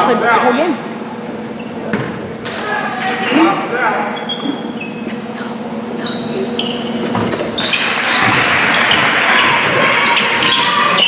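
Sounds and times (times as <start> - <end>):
sneakers squeaking on hardwood: 3.1 - 11.0
spectators shouting: 7.8 - 11.0.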